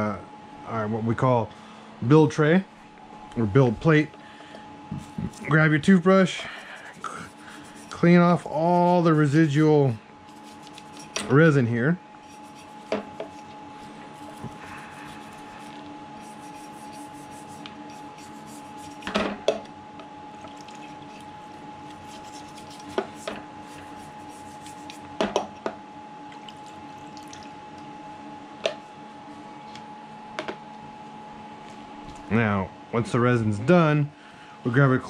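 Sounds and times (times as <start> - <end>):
steady background hum: 0.0 - 35.0
toothbrush scrubbing: 4.9 - 9.7, 10.3 - 11.3, 12.2 - 19.1, 20.4 - 25.1
liquid sounds: 20.4 - 25.0, 26.2 - 27.7.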